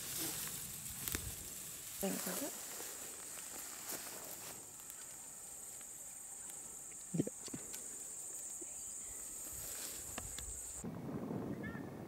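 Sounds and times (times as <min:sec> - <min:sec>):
insects buzzing trill: 0:00.0 - 0:10.8
faint ticks: 0:10.0 - 0:10.8.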